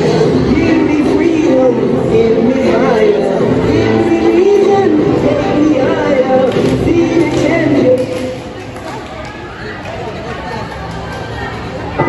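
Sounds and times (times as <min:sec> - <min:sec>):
loud dance music with vocal: 0:00.0 - 0:08.6.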